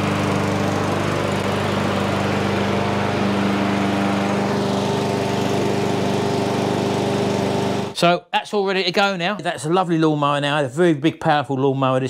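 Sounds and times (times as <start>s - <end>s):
lawnmower engine running: 0.0s - 8.0s.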